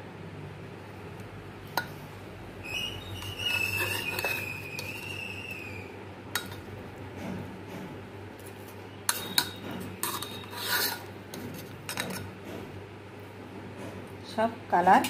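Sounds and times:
thin high squeal: 2.6 - 5.9, 9.1 - 11.1
metal spoon clinking on pot: 3.2 - 5.1, 6.3 - 6.7, 9.1 - 12.4.

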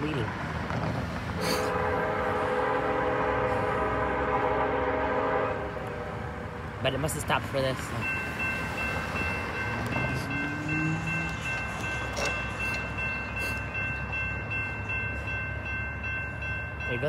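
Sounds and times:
railroad crossing bell ringing: 6.9 - 17.0.

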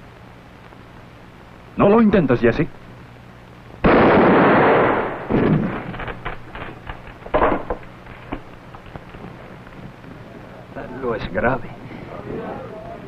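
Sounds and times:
knocks and thuds: 5.3 - 8.5.

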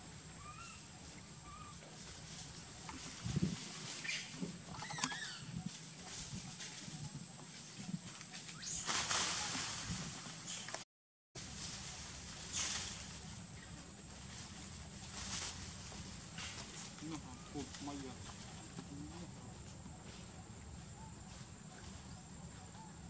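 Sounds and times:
faint chirps: 0.1 - 9.7
rustling in dry leaves: 0.2 - 4.7, 5.5 - 10.7, 11.4 - 20.3.

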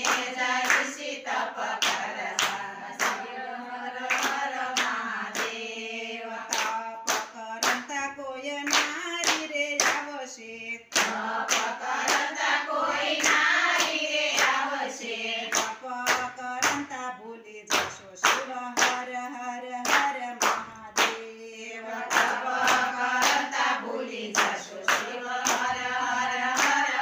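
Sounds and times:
women singing in unison: 0.0 - 27.0
hands clapping in time: 4.1 - 5.6, 6.5 - 7.9, 8.7 - 10.1, 10.9 - 12.3, 13.2 - 14.6, 15.5 - 16.9, 17.7 - 19.0, 19.8 - 21.3, 24.3 - 25.8, 26.4 - 27.0.

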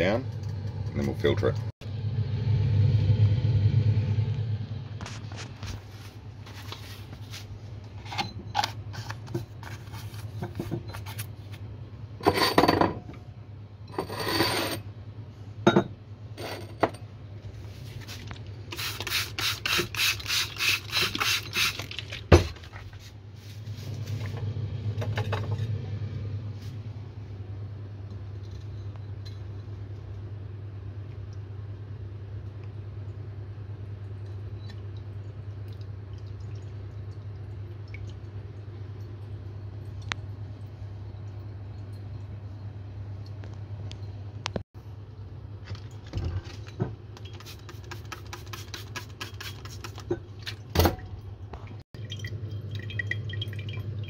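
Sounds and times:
steady low hum: 0.0 - 18.8, 22.5 - 47.3
spray bottle squirting water: 18.7 - 22.2, 47.2 - 50.1.

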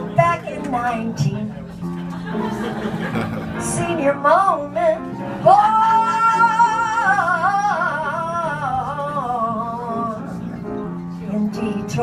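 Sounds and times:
woman singing jazz: 0.0 - 1.6, 3.6 - 10.5, 11.2 - 12.0
instrumental accompaniment: 0.0 - 12.0.

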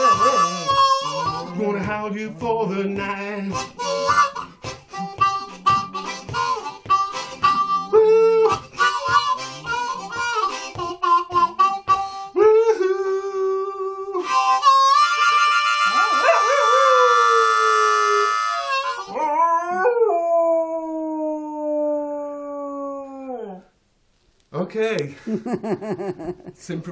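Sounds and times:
harmonica blues riff: 0.0 - 19.8
dog howling: 15.8 - 23.7.

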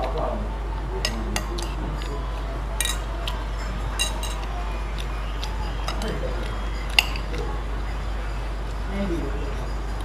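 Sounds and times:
low background hum: 0.0 - 10.0
spoon clinking on ceramic bowl: 1.0 - 8.1.

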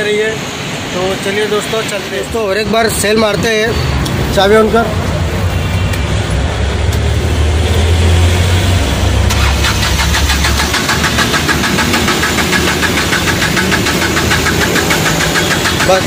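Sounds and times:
diesel engine cranking: 6.9 - 16.0.

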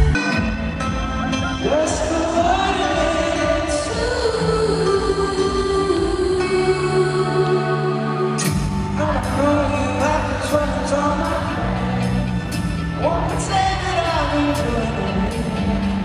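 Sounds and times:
live rock band playing: 0.0 - 4.3, 8.3 - 16.0
man singing into microphone: 1.6 - 4.1, 8.9 - 12.2, 13.0 - 16.0.

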